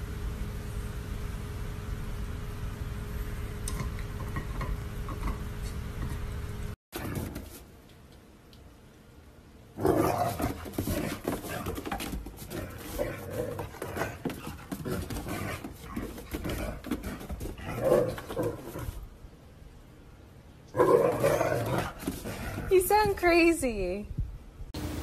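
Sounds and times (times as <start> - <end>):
paws scrabbling on wooden deck: 7.0 - 7.7, 9.8 - 19.1, 20.8 - 23.4.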